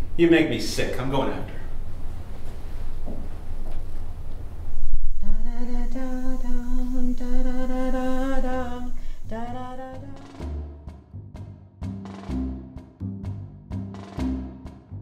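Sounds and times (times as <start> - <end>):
person humming: 5.2 - 10.5.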